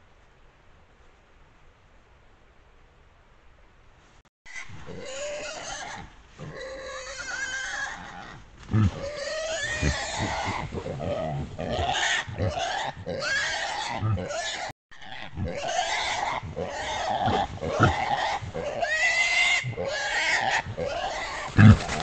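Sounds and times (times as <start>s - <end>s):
wild boar squealing: 4.5s - 22.0s.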